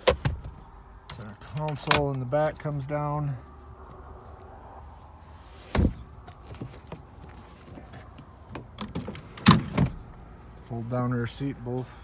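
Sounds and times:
clicks and knocks of seat fittings: 0.0 - 2.2, 5.8 - 10.2.

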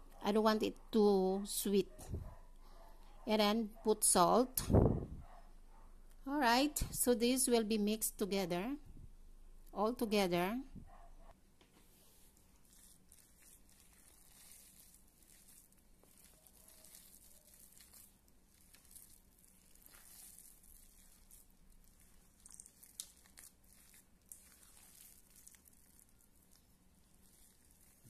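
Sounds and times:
spatula stirring mixture in bowl: 12.2 - 28.0.

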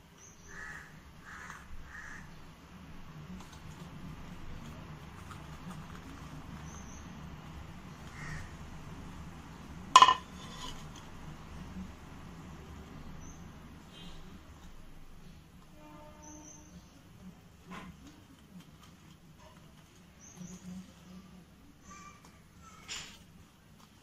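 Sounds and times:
low steady hum: 0.0 - 24.0
crows cawing: 0.4 - 2.4, 8.1 - 8.6.

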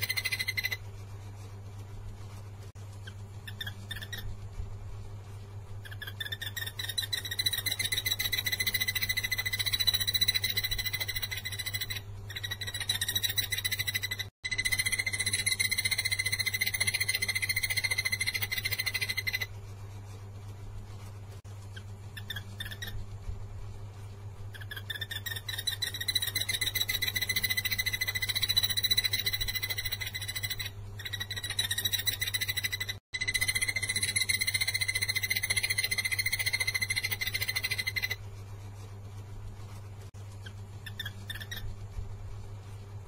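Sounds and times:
bird calling a fast trill: 0.0 - 0.8, 3.5 - 4.3, 5.8 - 19.5, 24.6 - 38.2
low steady hum: 0.0 - 43.0.

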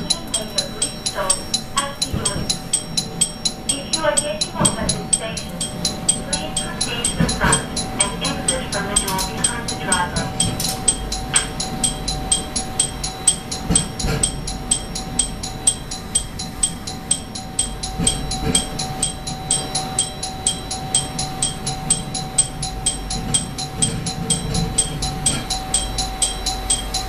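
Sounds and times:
level crossing warning bell: 0.0 - 27.0
low rumble of train: 0.0 - 27.0.

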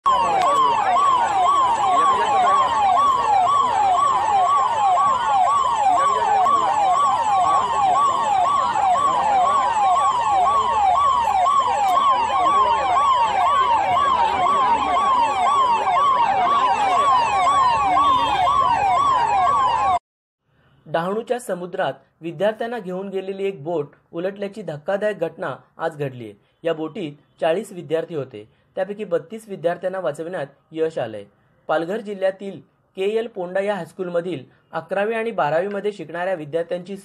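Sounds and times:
siren yelping: 0.0 - 20.0.

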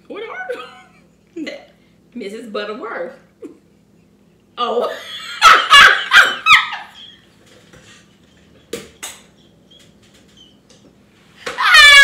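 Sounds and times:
woman laughing high-pitched: 4.9 - 7.2.

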